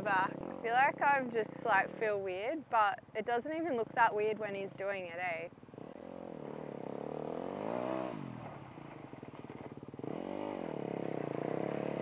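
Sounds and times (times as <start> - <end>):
dirt bike engine revving: 0.0 - 2.2, 5.7 - 12.0.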